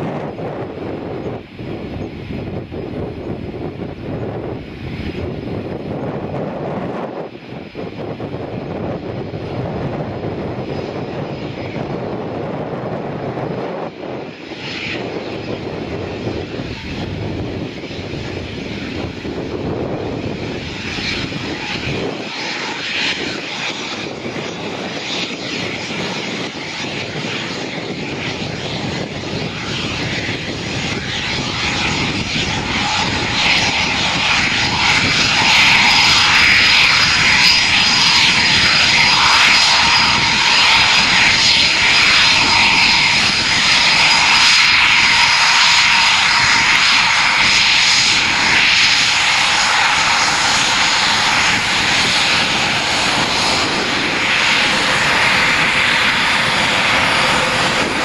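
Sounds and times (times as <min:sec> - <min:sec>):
jet engines taxiing: 0:00.0 - 0:58.0.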